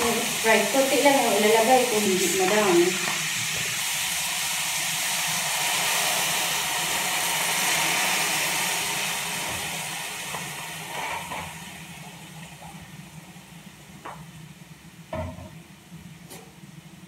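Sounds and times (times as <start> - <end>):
prawns sizzling in hot pan: 0.0 - 15.9.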